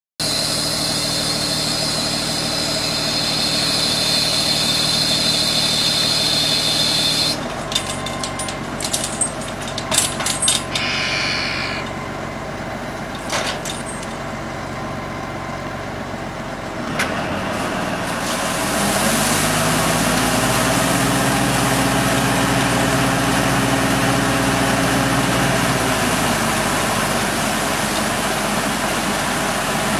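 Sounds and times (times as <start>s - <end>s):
water rushing from pipe: 0.2s - 7.4s, 17.6s - 29.9s
tractor engine running: 0.3s - 29.9s
high whine: 5.1s - 12.4s.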